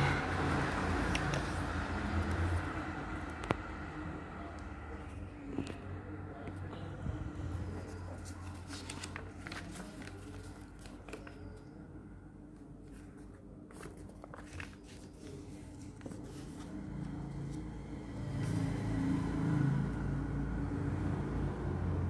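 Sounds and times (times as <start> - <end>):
steady low hum: 0.0 - 20.7
paper crinkling and rustling: 7.6 - 11.8, 12.6 - 17.2.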